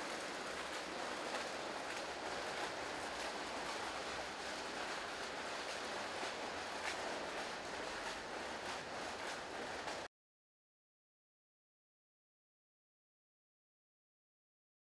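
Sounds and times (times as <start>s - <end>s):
outdoor background noise: 0.0s - 10.1s.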